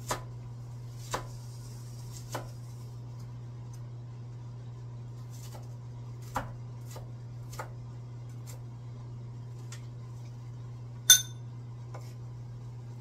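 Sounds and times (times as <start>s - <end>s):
knife chopping on wooden board: 0.0s - 0.3s, 1.0s - 1.4s, 6.2s - 7.8s
steady low hum: 0.0s - 13.0s
ringing metallic clink: 11.1s - 11.4s.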